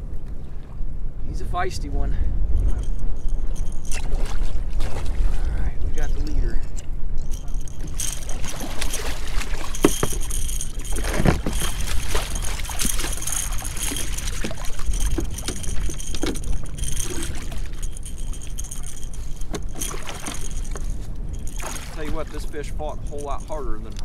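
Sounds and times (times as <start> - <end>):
wind buffeting microphone: 0.0 - 24.0
water lapping: 2.6 - 24.0
fish thrashing and splashing: 2.9 - 5.5, 7.2 - 22.4.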